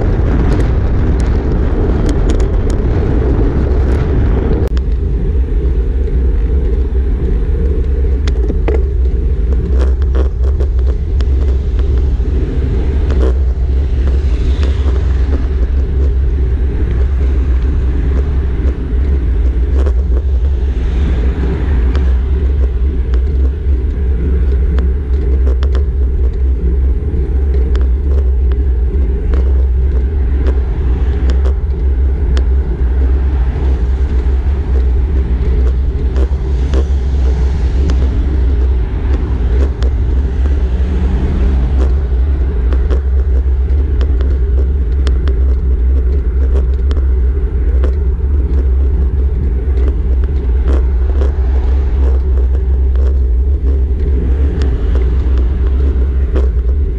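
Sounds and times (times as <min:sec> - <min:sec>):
cars passing: 0:00.0 - 0:56.9
road and wind rumble: 0:00.0 - 0:56.9.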